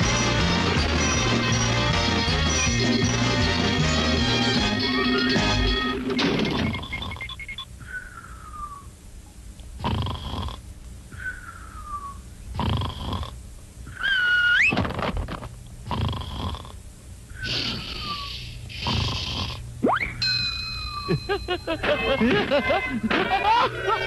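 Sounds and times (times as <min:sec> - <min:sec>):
cartoon rasping snore: 0:06.5 - 0:07.4, 0:09.8 - 0:10.6, 0:12.6 - 0:13.4, 0:15.8 - 0:16.8, 0:17.4 - 0:19.6
cartoon falling whistle: 0:14.0 - 0:14.8, 0:19.8 - 0:20.2.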